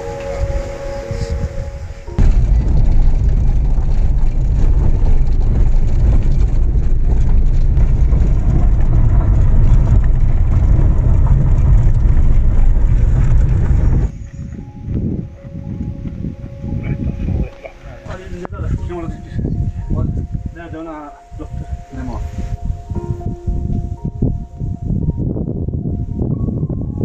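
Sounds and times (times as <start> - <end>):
car driving on gravel: 0.0 - 16.4.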